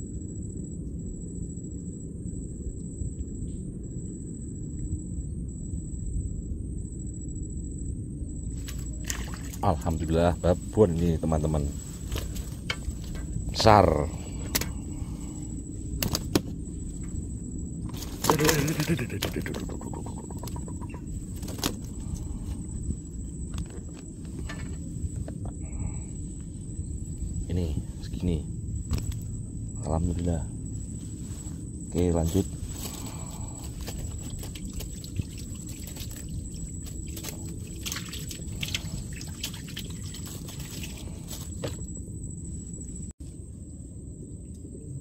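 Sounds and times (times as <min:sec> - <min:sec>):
wind rumbling on microphone: 0:00.0 - 0:45.0
water lapping against boat hull: 0:19.2 - 0:22.7, 0:32.8 - 0:41.9.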